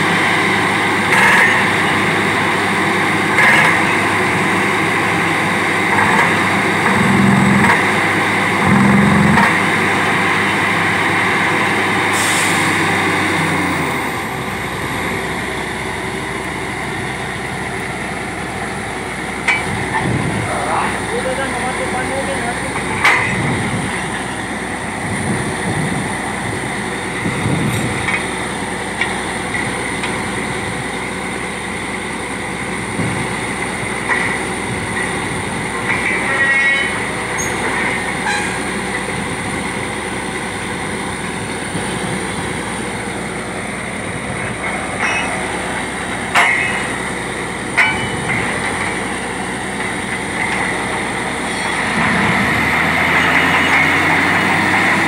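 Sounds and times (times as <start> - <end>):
high whine: 0.0 - 30.8
drilling rig engine drone: 0.0 - 55.0.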